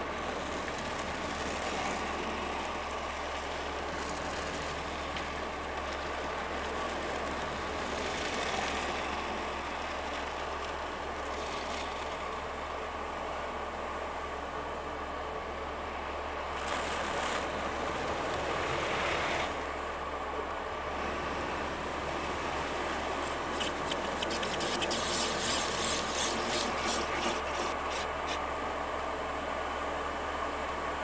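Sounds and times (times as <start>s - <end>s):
brushes slapping on car: 22.8s - 28.4s
spray hissing on glass: 23.1s - 28.4s.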